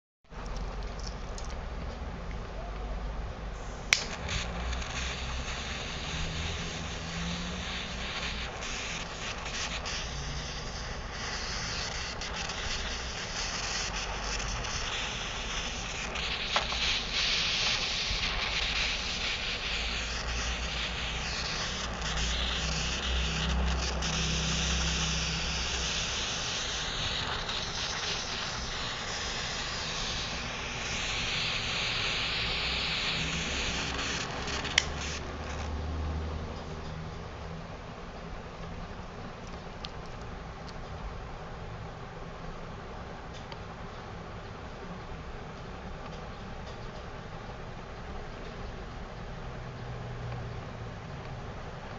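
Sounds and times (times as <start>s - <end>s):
torch flame hissing: 3.6s - 35.7s.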